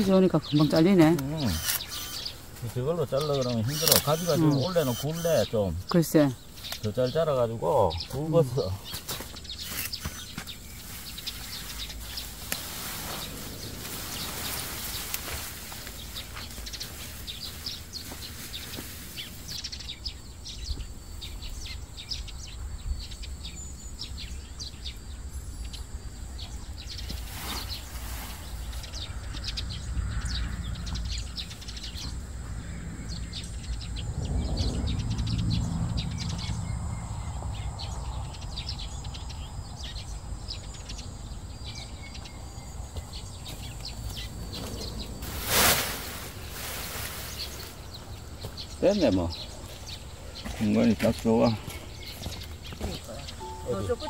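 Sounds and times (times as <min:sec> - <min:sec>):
leafy stalks rustling: 0:00.0 - 0:20.2, 0:27.0 - 0:29.2, 0:43.0 - 0:54.0
birds chirping: 0:00.0 - 0:54.0.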